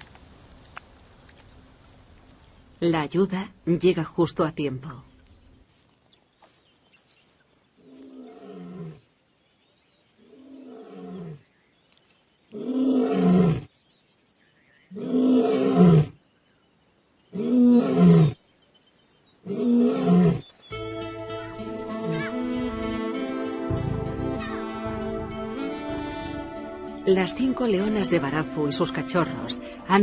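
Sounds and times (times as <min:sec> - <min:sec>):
background music: 0:20.7 - 0:30.0.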